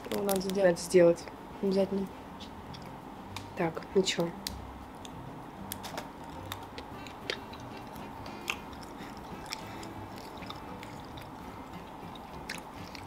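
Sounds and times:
chewing dried snack: 0:00.0 - 0:00.7, 0:05.0 - 0:13.0.

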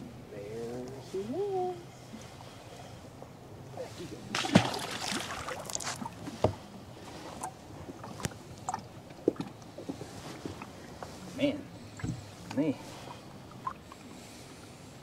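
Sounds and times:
fish splashing into water: 0:04.3 - 0:06.2.

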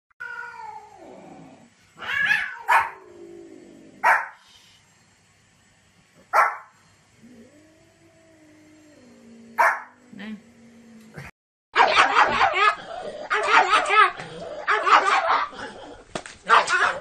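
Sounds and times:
small dog barking sharply: 0:04.0 - 0:04.4, 0:06.4 - 0:06.7, 0:11.8 - 0:12.6, 0:16.5 - 0:17.0.

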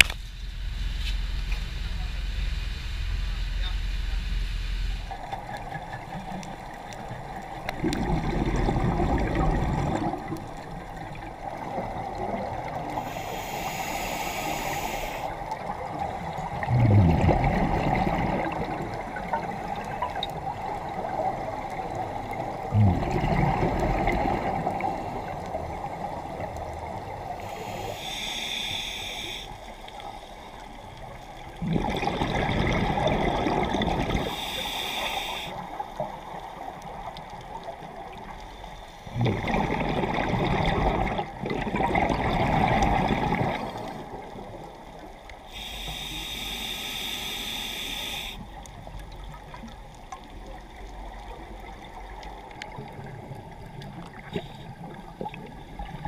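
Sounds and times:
bubbling exhalation: 0:07.7 - 0:10.4, 0:16.5 - 0:19.4, 0:22.6 - 0:25.1, 0:31.6 - 0:34.4, 0:39.1 - 0:44.0
hissing regulator inhalation: 0:13.0 - 0:15.4, 0:27.3 - 0:30.3, 0:34.2 - 0:35.7, 0:45.5 - 0:48.5.

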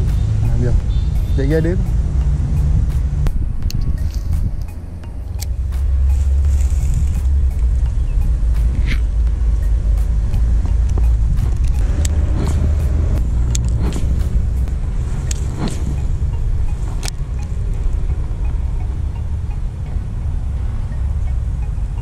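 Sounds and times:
low outdoor rumble: 0:00.0 - 0:22.0.

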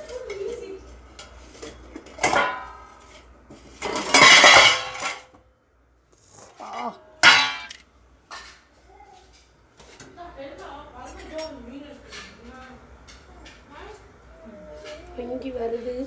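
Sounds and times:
metal pot lid clanking: 0:03.8 - 0:05.2, 0:06.7 - 0:07.8.

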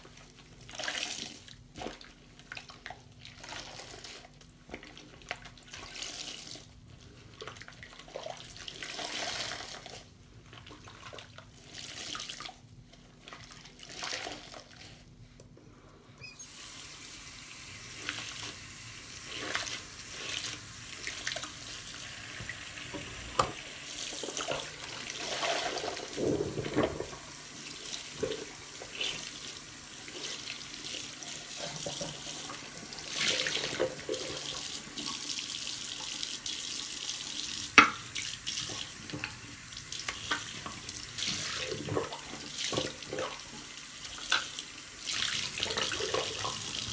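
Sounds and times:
sponge squelching and dripping: 0:00.0 - 0:15.4, 0:17.6 - 0:46.9
tap water running: 0:16.2 - 0:46.9.

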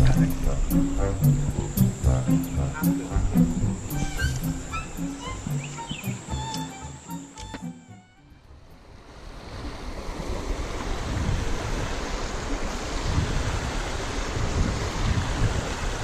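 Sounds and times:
stream running over rocks: 0:08.7 - 0:16.0
wind buffeting microphone: 0:08.9 - 0:16.0.

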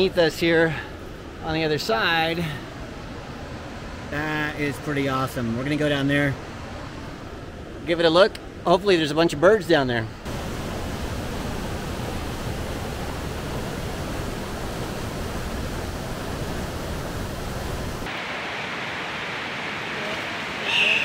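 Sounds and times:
thin high hiss: 0:20.0 - 0:21.0.

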